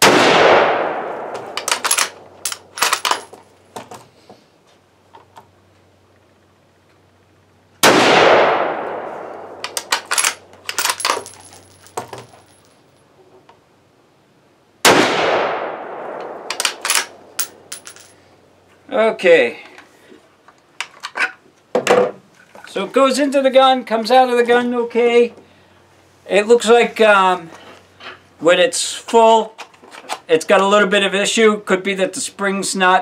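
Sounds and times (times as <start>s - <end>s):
rifle shots echoing: 0.0s - 3.1s, 7.8s - 11.2s, 14.8s - 18.0s
rifle bolt metallic clicks: 1.6s - 3.3s, 9.6s - 11.3s, 16.2s - 17.6s.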